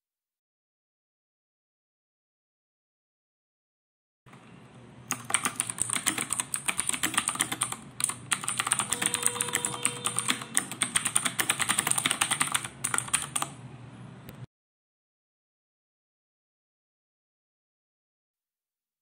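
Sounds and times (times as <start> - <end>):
typing on computer keyboard: 5.1 - 13.6.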